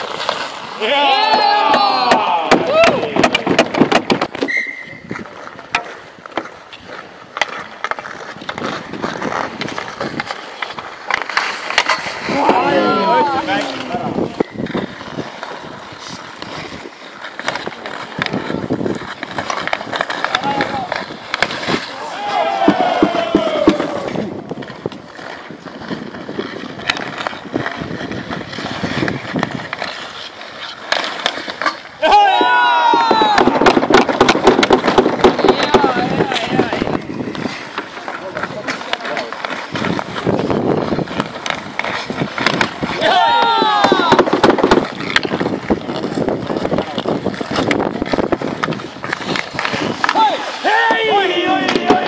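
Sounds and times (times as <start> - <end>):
hockey sticks and puck clacking: 0.0 - 52.0
skates scraping on ice: 0.0 - 52.0
person shouting: 0.8 - 3.1, 12.3 - 13.5, 32.0 - 33.5, 43.0 - 44.2
high whistle: 4.4 - 5.0.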